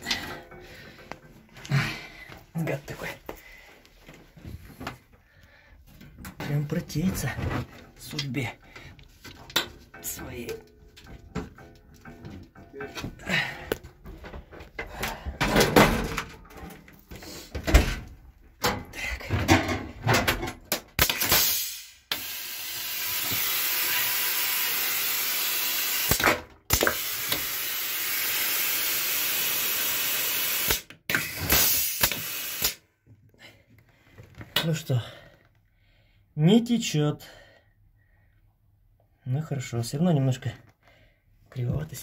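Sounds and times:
knocks and clatter from handling: 0:09.0 - 0:20.8.

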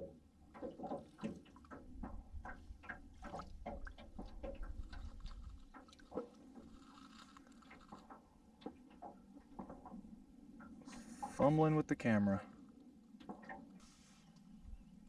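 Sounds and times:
small waves lapping against boat: 0:00.0 - 0:15.0
wind rumbling on microphone: 0:01.7 - 0:06.8.

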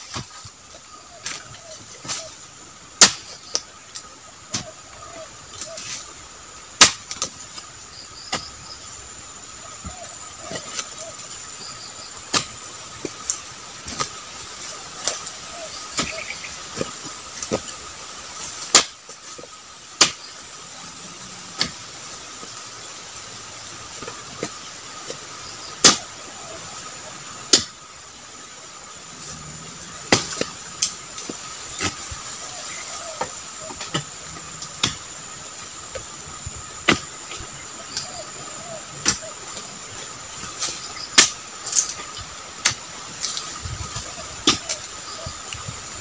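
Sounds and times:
steady high hum and hiss: 0:00.0 - 0:46.0
chisel blade chopping a palm: 0:03.0 - 0:03.2, 0:18.7 - 0:19.0, 0:27.5 - 0:27.7.

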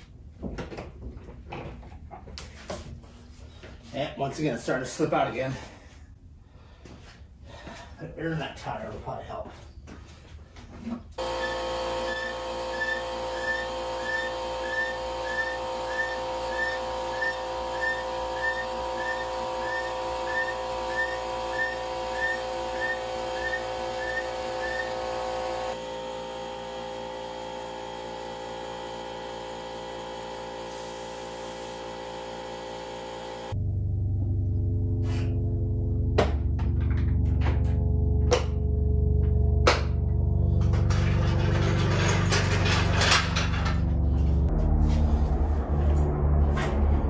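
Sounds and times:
synth drone: 0:11.2 - 0:47.0.

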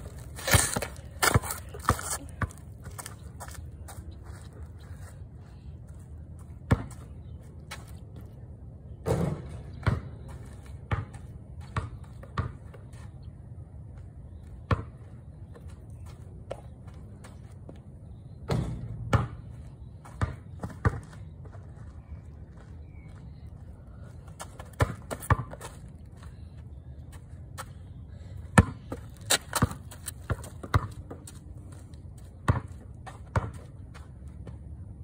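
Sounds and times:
basketball bouncing on concrete: 0:00.2 - 0:02.6, 0:09.0 - 0:10.3, 0:10.9 - 0:12.8, 0:14.7 - 0:15.0, 0:18.5 - 0:21.2, 0:24.6 - 0:25.8, 0:28.6 - 0:31.4, 0:32.4 - 0:33.7.

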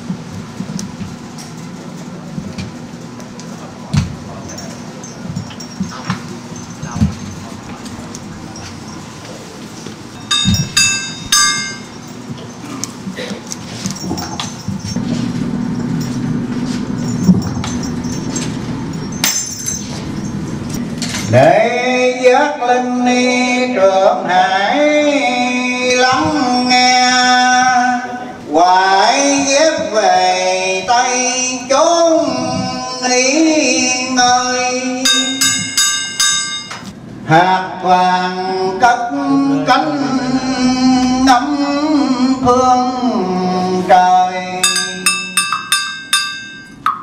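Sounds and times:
metallic clinks and jingles: 0:04.3 - 0:12.7, 0:13.6 - 0:21.4, 0:35.1 - 0:36.8, 0:44.6 - 0:46.9
bell ringing: 0:10.1 - 0:12.6, 0:15.7 - 0:21.4, 0:35.0 - 0:36.9, 0:44.6 - 0:47.0
man chanting: 0:21.3 - 0:35.4, 0:37.3 - 0:45.1.

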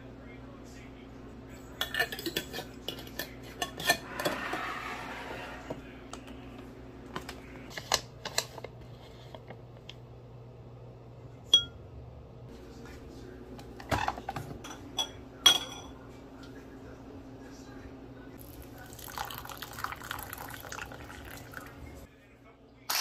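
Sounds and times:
metal spoon clinking on glass: 0:11.5 - 0:11.8, 0:14.7 - 0:15.9.

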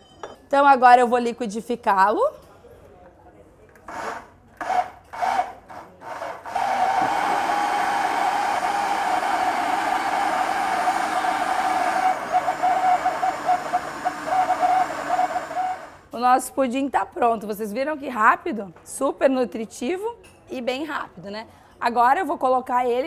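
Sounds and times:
electric blender motor: 0:03.9 - 0:16.1.

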